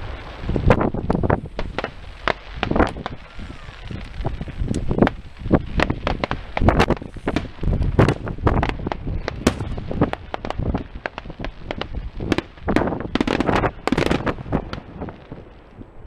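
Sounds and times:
fireworks bursting: 0.0s - 16.0s
sharp firework cracks: 0.0s - 16.0s.

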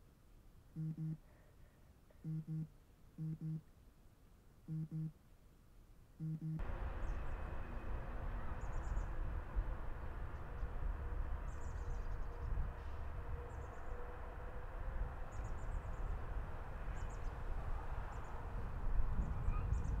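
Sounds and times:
faint hum: 0.7s - 3.8s, 6.2s - 20.0s
faint high-pitched chirps: 0.8s - 1.2s, 2.2s - 3.6s, 4.7s - 5.1s
low rumble: 6.6s - 16.3s.

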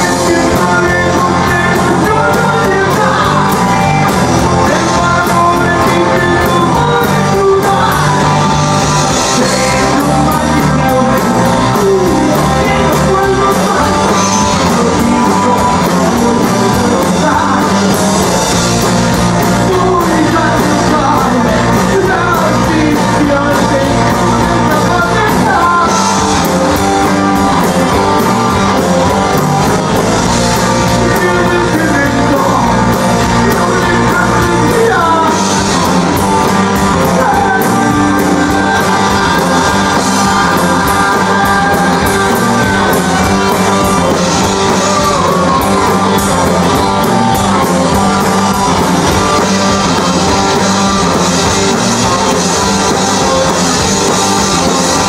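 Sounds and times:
drums: 0.0s - 55.0s
electric guitars: 0.0s - 55.0s
singer shouting vocals: 36.9s - 46.0s.

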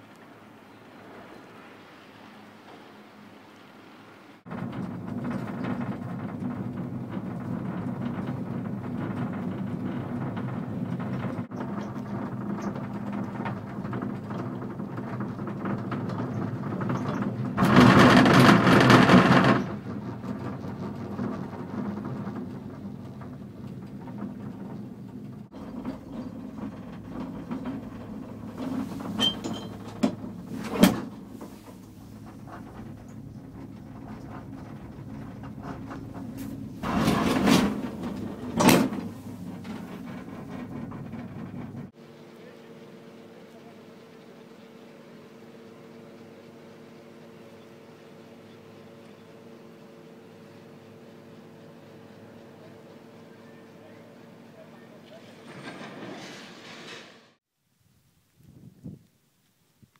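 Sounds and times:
gondola cabin rumbling on cable: 4.4s - 57.4s
cabin rattling over tower sheaves: 4.5s - 42.0s, 49.6s - 57.4s.

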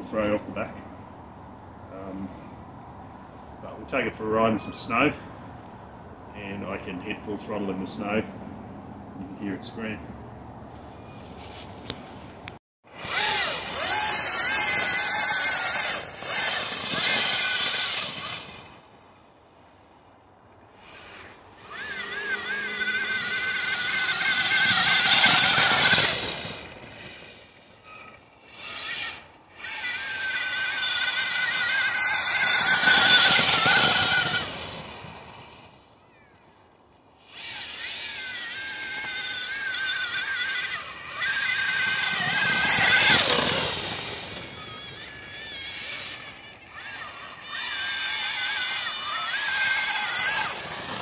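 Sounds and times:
electric motors whining: 12.9s - 51.0s.

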